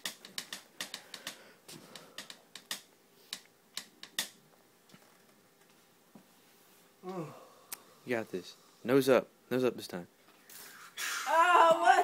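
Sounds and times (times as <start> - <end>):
sharp light clicks and taps: 0.0 - 5.8.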